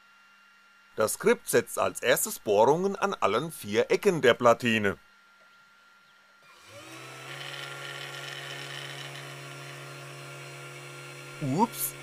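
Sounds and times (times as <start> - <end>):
spindle motor whining: 6.4 - 12.0.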